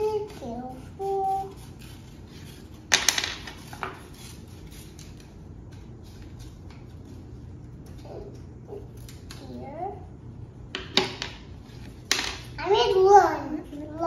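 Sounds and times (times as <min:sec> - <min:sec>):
scissors snipping paper: 0:00.0 - 0:09.6.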